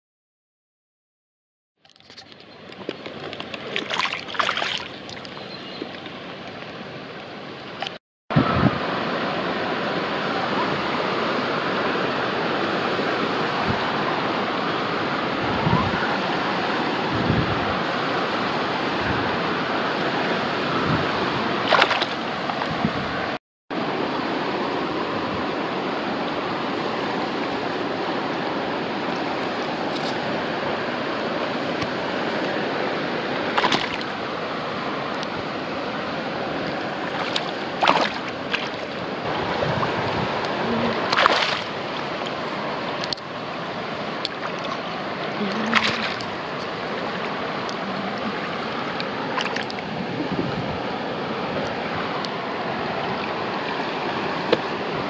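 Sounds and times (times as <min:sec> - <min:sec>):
sharp water splashes: 0:01.9 - 0:06.8, 0:21.4 - 0:22.8, 0:33.3 - 0:35.3, 0:36.4 - 0:50.3
river water rushing: 0:02.0 - 0:55.0.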